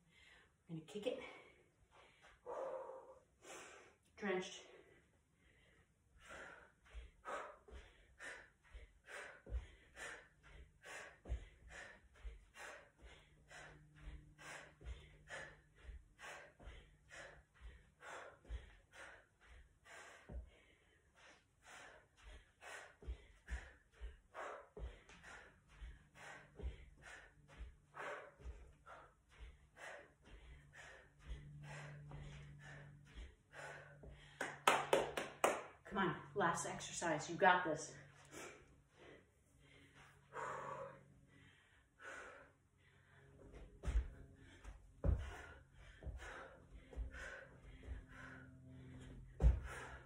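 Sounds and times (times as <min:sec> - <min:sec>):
person breathing hard: 0:00.0 - 0:04.1, 0:04.7 - 0:35.3, 0:38.0 - 0:50.0
bare feet thudding on a rug: 0:43.5 - 0:50.0.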